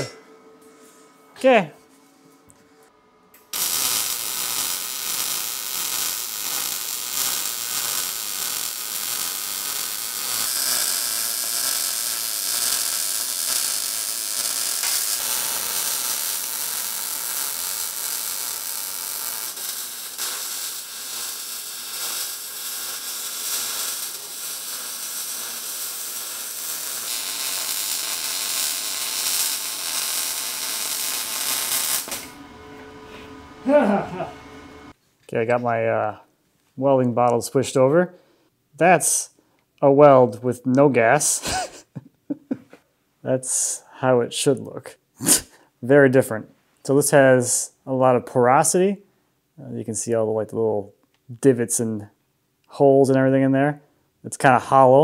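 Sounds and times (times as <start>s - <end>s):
welding arc crackling: 3.4s - 32.5s.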